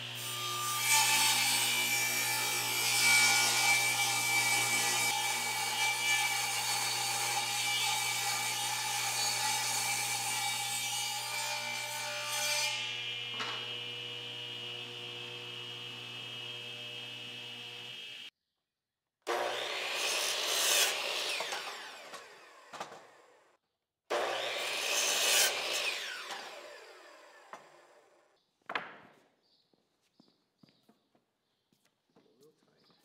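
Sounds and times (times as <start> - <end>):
saw cutting wooden boards: 0.0 - 18.3, 19.3 - 23.4, 24.1 - 28.2
table saw motor running: 12.8 - 18.3.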